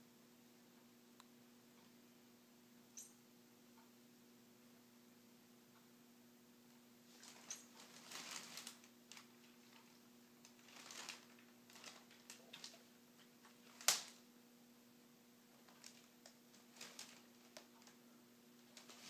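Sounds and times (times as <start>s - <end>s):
low steady hum: 0.0s - 19.0s
faint rustling and scratching: 7.0s - 14.1s, 15.5s - 18.0s, 18.6s - 19.0s.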